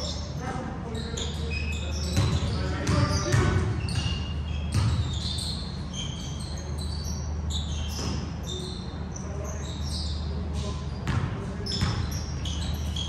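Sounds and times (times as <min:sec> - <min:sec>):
sneaker squeaks: 0:00.0 - 0:13.0
ball bouncing on hardwood court: 0:01.2 - 0:05.6, 0:07.9 - 0:08.6, 0:10.5 - 0:13.0.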